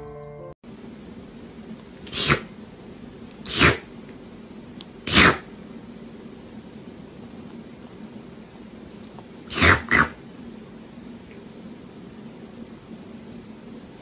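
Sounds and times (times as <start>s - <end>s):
cat sneezing: 2.0s - 2.6s, 3.5s - 3.9s, 5.0s - 5.5s, 9.4s - 10.2s.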